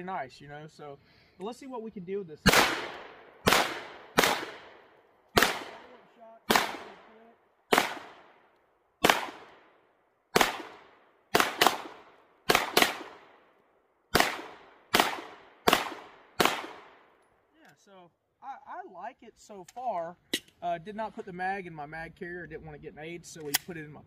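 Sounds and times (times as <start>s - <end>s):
pistol shots with echo: 2.4s - 7.1s, 7.7s - 8.4s, 9.0s - 13.4s, 14.1s - 17.1s.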